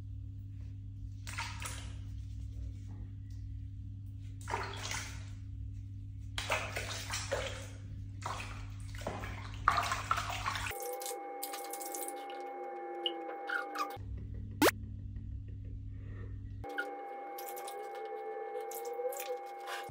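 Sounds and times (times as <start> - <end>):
steady low hum: 0.0 - 19.9
water splashing in a plastic basin: 1.2 - 2.1, 4.4 - 5.4, 6.4 - 12.3.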